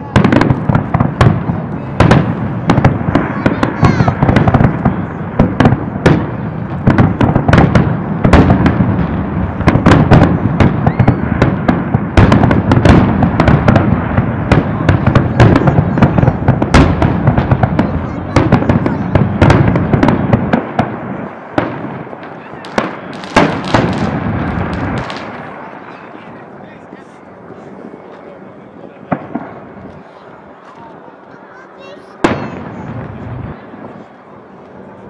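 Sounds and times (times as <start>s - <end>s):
low rumble and crackle: 0.0s - 31.4s
firework shells bursting: 21.6s - 25.5s.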